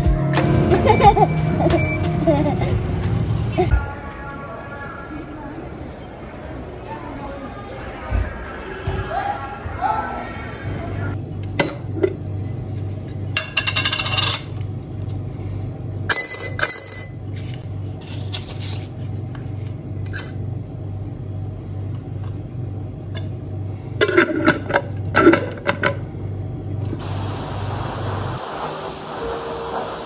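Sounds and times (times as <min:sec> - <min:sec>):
steady low hum: 0:10.6 - 0:29.2
coins clinking against glass: 0:16.1 - 0:17.5.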